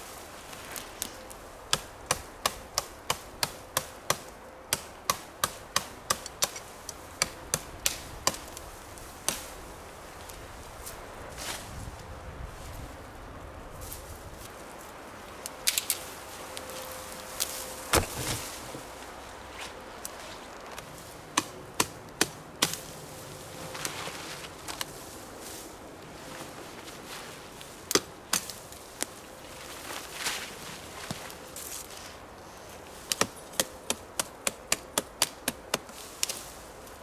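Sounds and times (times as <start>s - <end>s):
rustle of branches and needles: 0.0s - 37.0s
machete chopping branches: 1.7s - 8.6s, 17.4s - 18.7s, 21.3s - 22.9s, 27.9s - 28.6s, 33.0s - 36.4s.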